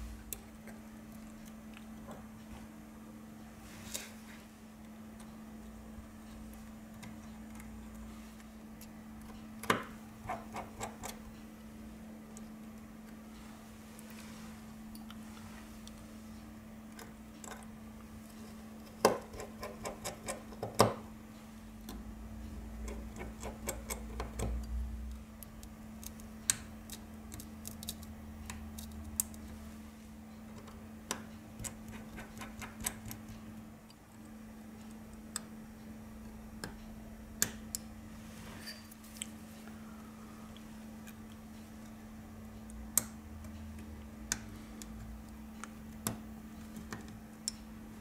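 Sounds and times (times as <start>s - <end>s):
tweezers clicking on metal parts: 22.8s - 29.5s.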